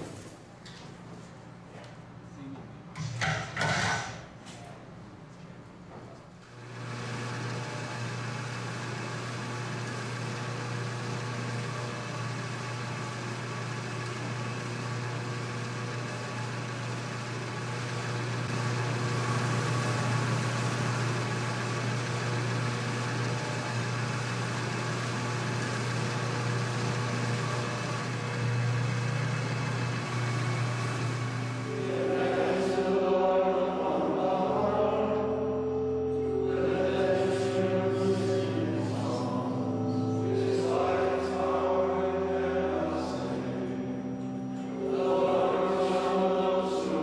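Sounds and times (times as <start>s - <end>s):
machinery humming: 0.0s - 47.0s.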